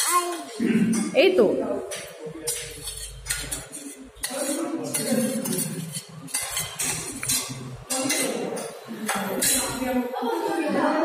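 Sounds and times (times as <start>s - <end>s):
spoon clinking on a plate: 2.0s - 9.9s.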